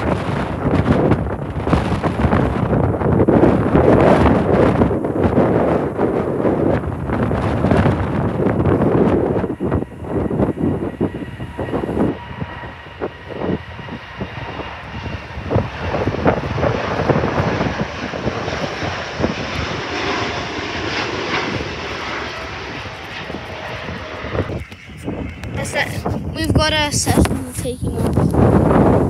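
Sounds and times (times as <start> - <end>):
jet airliner taking off: 0.0 - 29.0
wind buffeting microphone: 0.0 - 29.0.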